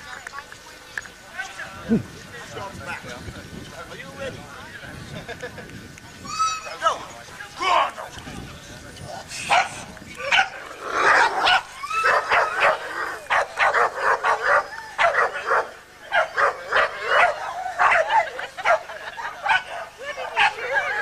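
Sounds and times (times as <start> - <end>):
dog barking and yipping: 9.5 - 20.7.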